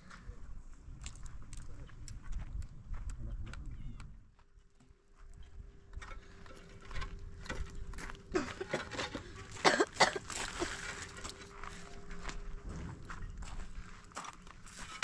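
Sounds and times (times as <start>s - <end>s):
concrete blocks knocking and scraping: 6.0s - 10.3s.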